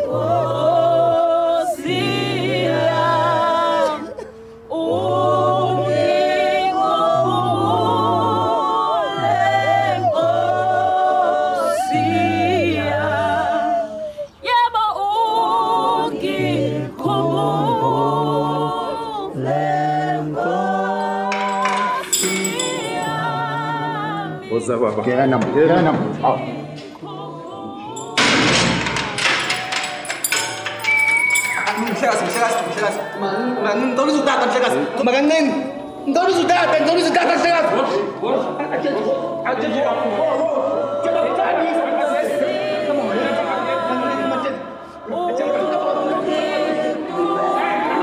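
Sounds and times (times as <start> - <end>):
a cappella choir singing hymn: 0.0 - 48.0.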